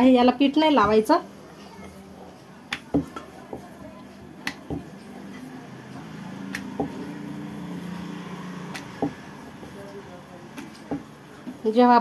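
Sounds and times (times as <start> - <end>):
rolling pin rumbling on dough: 1.8 - 11.7
rolling pin knocking on board: 2.7 - 3.8, 4.4 - 5.0, 6.4 - 7.1, 8.7 - 9.3, 10.5 - 11.6.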